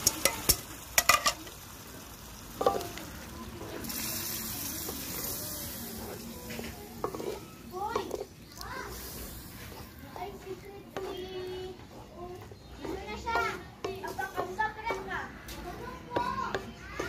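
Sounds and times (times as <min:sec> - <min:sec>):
hiss of cooking stew: 0:00.0 - 0:14.1
wooden spatula stirring stew: 0:04.7 - 0:17.0.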